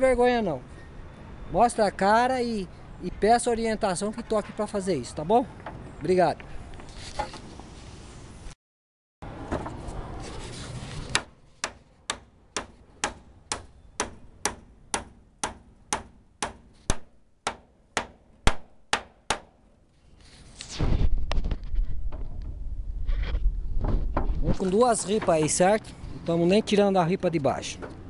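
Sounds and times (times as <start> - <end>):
hammer striking nails into wood: 11.1 - 19.6.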